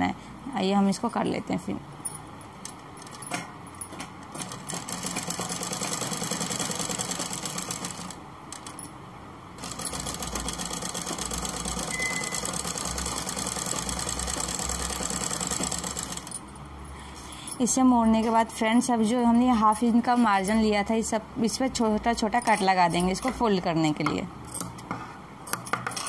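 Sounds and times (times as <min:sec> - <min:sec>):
sewing machine running: 0:04.3 - 0:08.8, 0:09.6 - 0:16.4.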